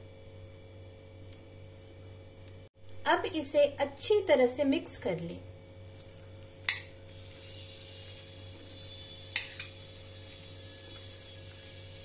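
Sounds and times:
faint sizzle: 0:03.2 - 0:12.0
spoon stirring thick gravy: 0:05.9 - 0:12.0.

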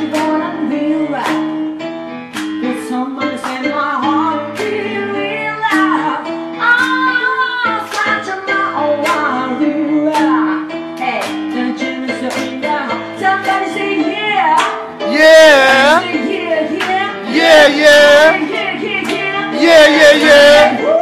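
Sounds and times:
woman singing into a microphone: 0:00.0 - 0:01.8, 0:02.6 - 0:15.1, 0:16.0 - 0:21.0
keyboard chords: 0:00.0 - 0:21.0.

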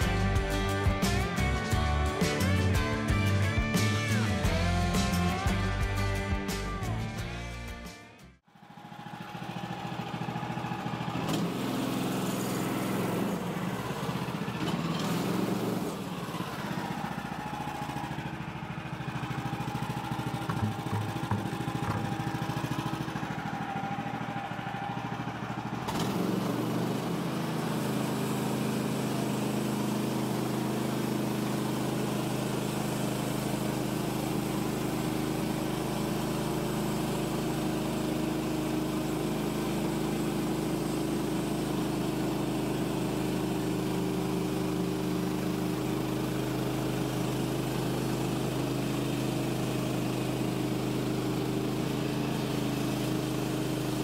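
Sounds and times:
sawmill gasoline engine running: 0:00.0 - 0:07.7, 0:08.4 - 0:54.0.

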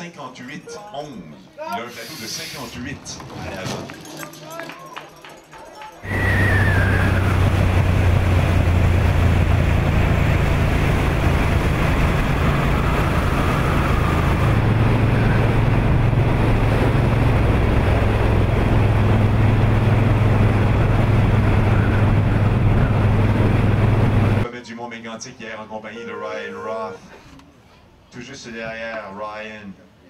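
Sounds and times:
vehicle engine running: 0:06.0 - 0:24.4
wind rushing over microphone: 0:06.0 - 0:24.4.

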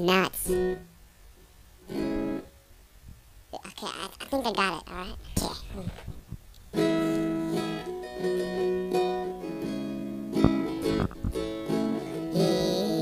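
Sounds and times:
strummed acoustic chords: 0:00.4 - 0:01.0, 0:01.8 - 0:02.6, 0:06.7 - 0:13.0.

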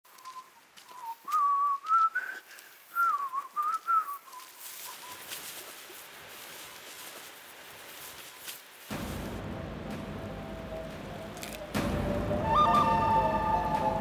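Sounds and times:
person whistling a tune: 0:00.2 - 0:04.5, 0:12.4 - 0:14.0.

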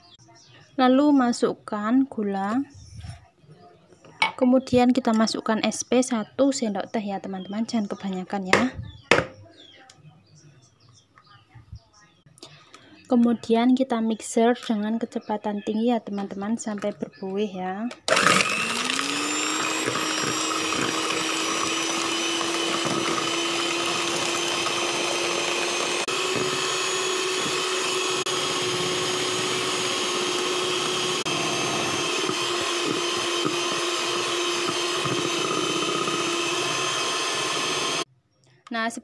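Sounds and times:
electric hand mixer whisking: 0:18.1 - 0:38.1.

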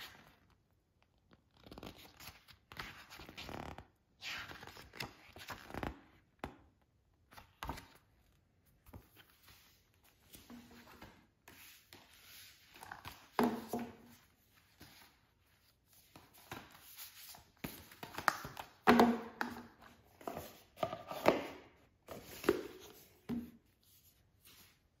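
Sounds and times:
rustling of card sleeves: 0:22.1 - 0:25.0.

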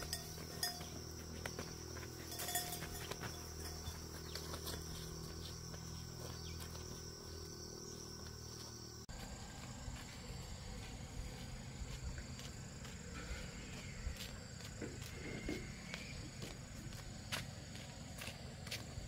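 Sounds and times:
insects droning: 0:00.0 - 0:19.0.

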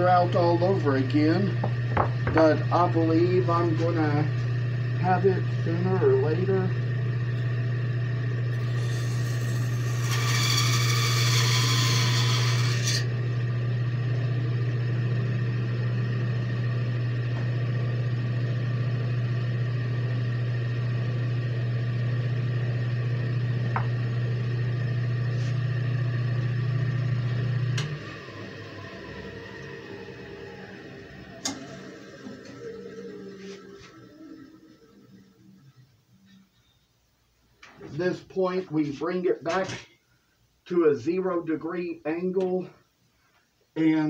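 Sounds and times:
bandsaw motor hum: 0:00.0 - 0:35.9
saw blade cutting wood: 0:08.6 - 0:13.1.

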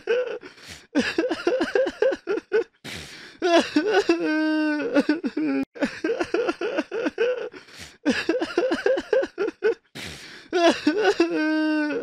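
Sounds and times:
person sobbing: 0:00.0 - 0:12.0
sharp drawn-in breaths: 0:00.5 - 0:00.9, 0:02.8 - 0:03.4, 0:07.6 - 0:08.0, 0:10.0 - 0:10.5.

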